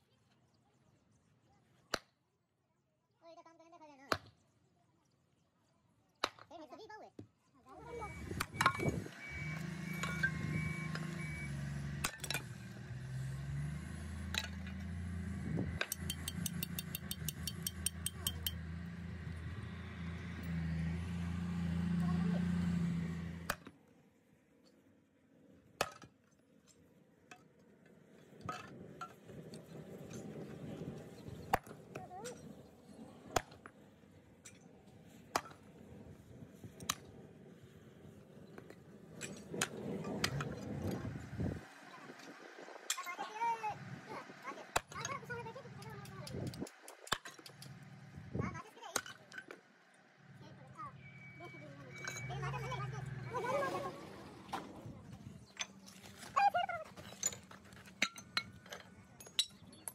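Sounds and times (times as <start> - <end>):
workshop machinery humming: 7.8 - 23.5
sharp metal knocks: 15.7 - 18.6.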